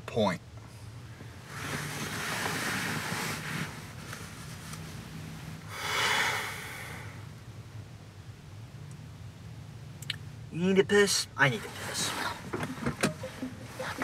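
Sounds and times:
car cabin hum: 0.0s - 5.9s, 10.0s - 14.0s.

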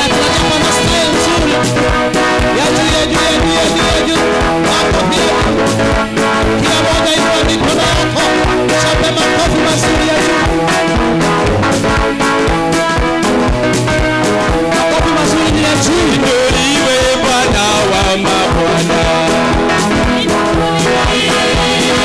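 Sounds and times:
praise and worship band music: 0.0s - 22.0s
steady drum beat: 0.0s - 22.0s
singing: 20.6s - 22.0s.

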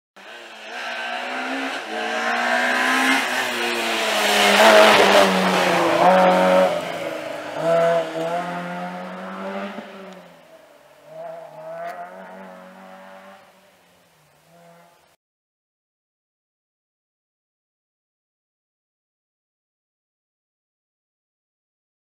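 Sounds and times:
rally car passing by: 0.2s - 13.6s, 14.5s - 15.0s.

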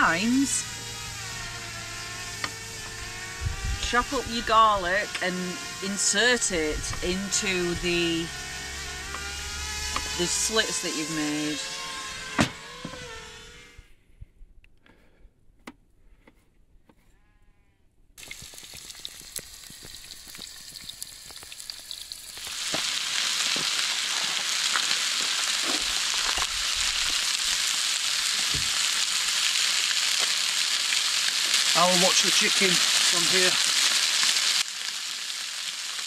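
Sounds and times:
chicken sizzling in a pan: 18.2s - 36.0s.

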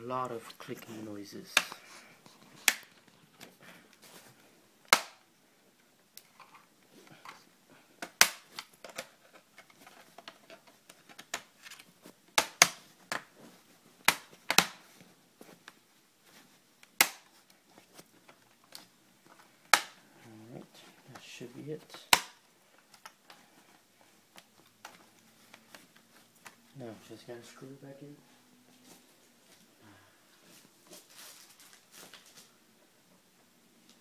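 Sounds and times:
plastic clips snapping into place: 19.7s - 20.0s.

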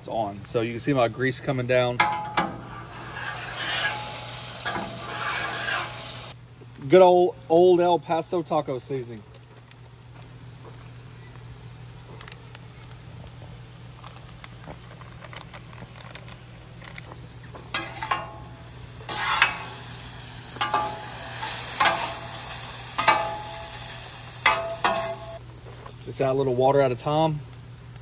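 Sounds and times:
metal spatula scraping steel plate: 2.6s - 6.0s, 19.1s - 19.7s
meat sizzling on a griddle: 2.9s - 6.4s, 16.0s - 28.0s.

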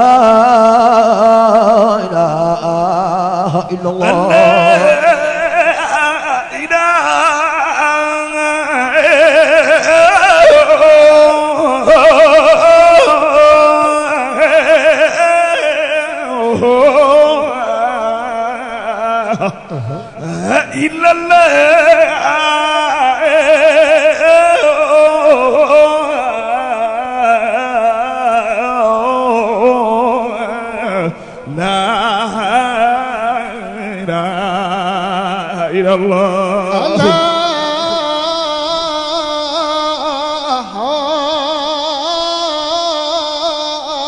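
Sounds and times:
man chanting through loudspeakers: 0.0s - 44.0s
second man chanting: 3.6s - 17.4s, 36.6s - 44.0s.

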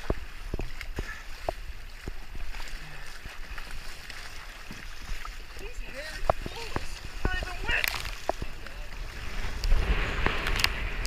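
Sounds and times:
water splashing against kayak: 0.0s - 11.0s
low rumble: 8.0s - 11.0s.

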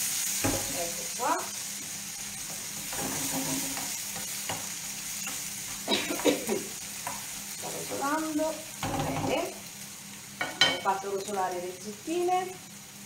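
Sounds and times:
vegetables sizzling in a pan: 0.0s - 13.0s
utensil scraping a pan: 2.4s - 5.8s.

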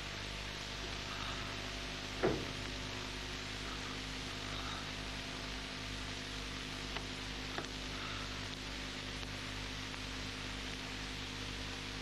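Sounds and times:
film soundtrack hiss and hum: 0.0s - 12.0s
faint clicks: 6.9s - 7.8s.

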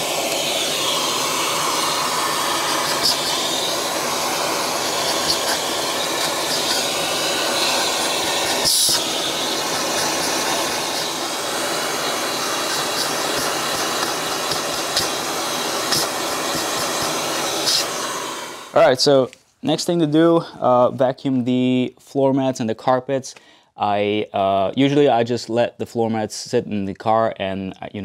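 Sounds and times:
vacuum cleaner running: 0.0s - 18.9s.

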